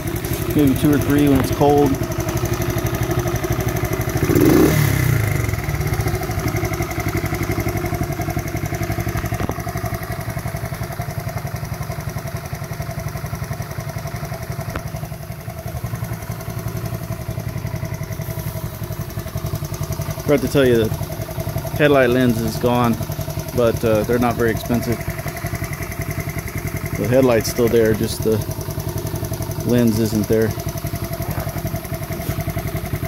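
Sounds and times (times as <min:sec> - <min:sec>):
motorcycle engine idling: 0:00.0 - 0:33.0.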